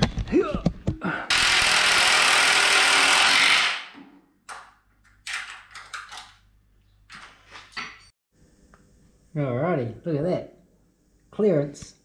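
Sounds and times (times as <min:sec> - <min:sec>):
power tool running: 0:01.3 - 0:03.9
tools and metal parts clattering: 0:05.0 - 0:06.5, 0:07.1 - 0:08.1.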